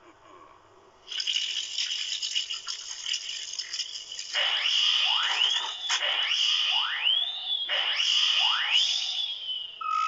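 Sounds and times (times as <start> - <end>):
rising whistling sweeps: 4.4 - 10.0.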